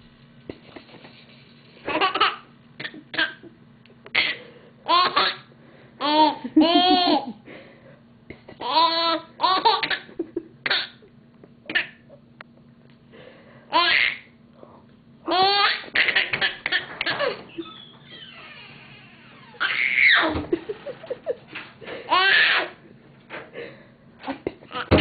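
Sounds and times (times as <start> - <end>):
baby laughing: 1.9 - 3.5, 4.1 - 7.4, 8.5 - 11.0, 13.7 - 14.3, 15.3 - 18.6, 19.5 - 21.3, 22.1 - 22.8.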